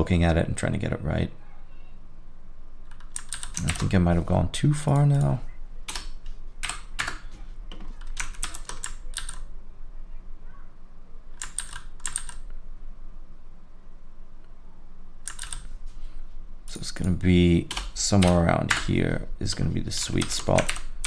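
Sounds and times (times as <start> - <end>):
faint low hum: 0.0 - 21.0
computer keyboard keystrokes: 2.9 - 4.0, 5.9 - 9.4, 11.4 - 12.5, 15.2 - 15.7, 17.0 - 18.9, 20.1 - 21.0.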